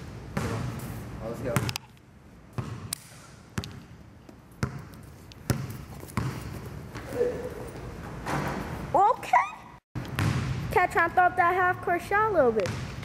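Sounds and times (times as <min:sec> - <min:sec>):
basketball bouncing on wooden floor: 0:04.6 - 0:07.1, 0:10.1 - 0:10.7, 0:12.6 - 0:13.0.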